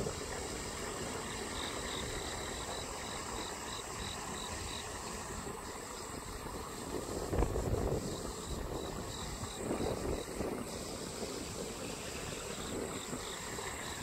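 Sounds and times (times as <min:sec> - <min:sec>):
insect chirps: 0:00.0 - 0:14.0
insect buzzing: 0:01.1 - 0:14.0.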